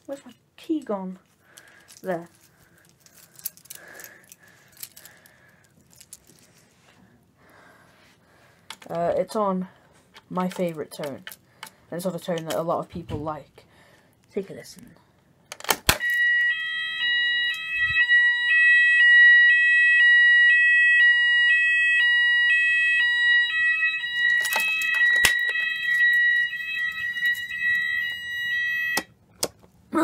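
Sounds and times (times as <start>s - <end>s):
fire alarm sounder: 16.0s - 29.1s.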